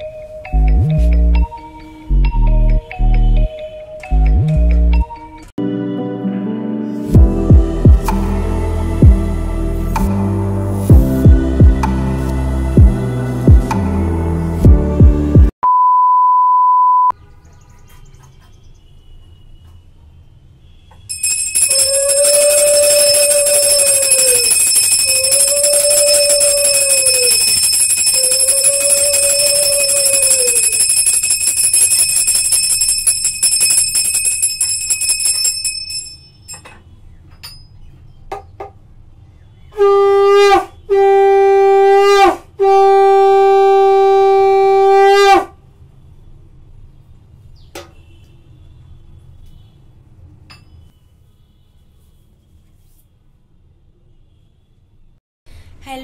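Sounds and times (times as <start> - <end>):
hand bell ringing: 21.1 - 36.7
conch shell blasts: 21.7 - 30.6.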